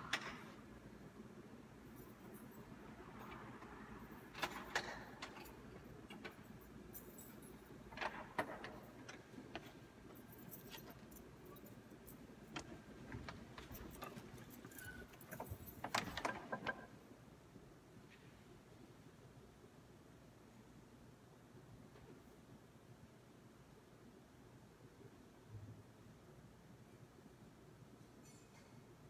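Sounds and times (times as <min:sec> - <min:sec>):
light clicks and rattles: 0:01.9 - 0:16.9.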